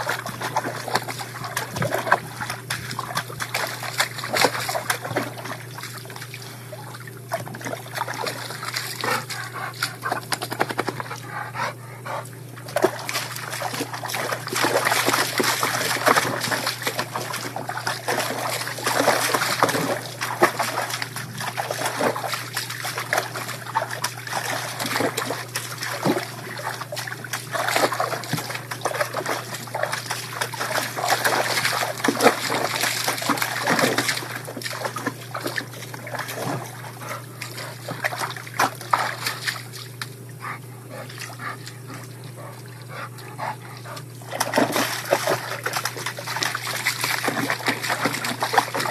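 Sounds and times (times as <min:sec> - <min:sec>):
dog splashing in water tub: 0:00.0 - 0:48.9.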